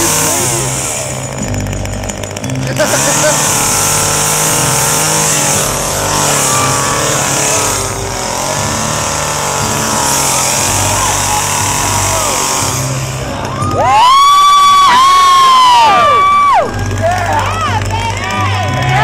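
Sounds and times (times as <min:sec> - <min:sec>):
chainsaw engine running: 0:00.0 - 0:19.0.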